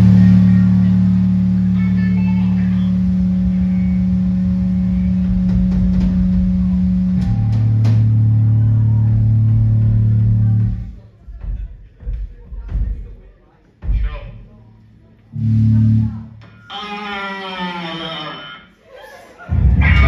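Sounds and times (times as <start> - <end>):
rock band droning guitar note: 0.0 - 11.0, 15.3 - 18.7, 19.5 - 20.0.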